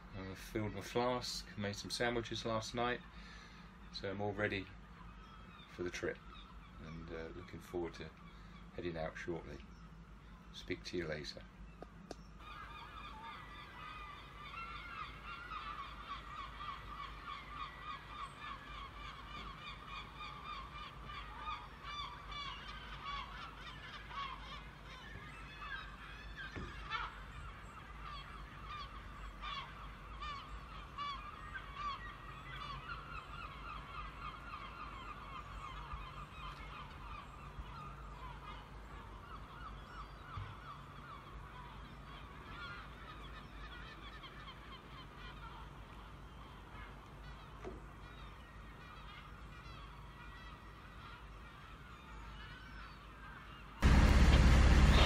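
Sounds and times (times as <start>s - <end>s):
geese honking: 12.4s - 40.2s, 53.8s - 55.0s.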